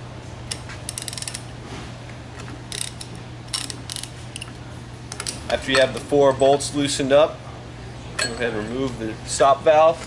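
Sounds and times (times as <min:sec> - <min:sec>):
steady low hum: 0:00.0 - 0:10.0
ratchet wrench clicking: 0:00.5 - 0:01.4, 0:02.7 - 0:04.5.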